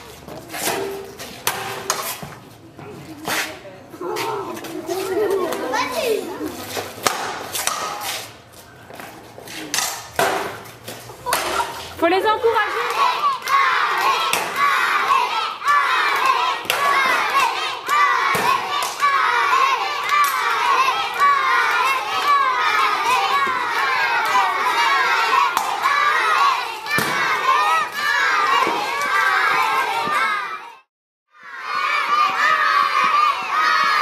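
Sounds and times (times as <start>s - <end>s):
crowd of children shouting: 12.5s - 34.0s.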